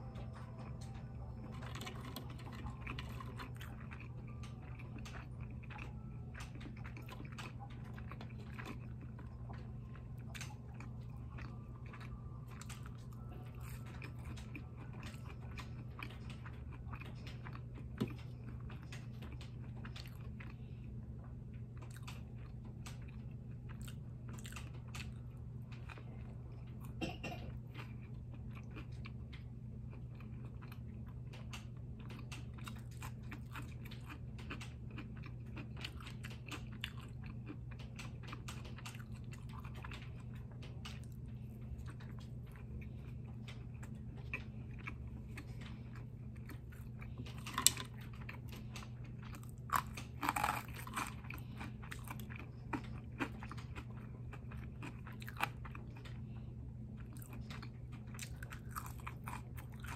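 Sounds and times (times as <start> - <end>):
steady low hum: 0.0 - 59.9
chewing with crunchy clicks: 0.1 - 59.9.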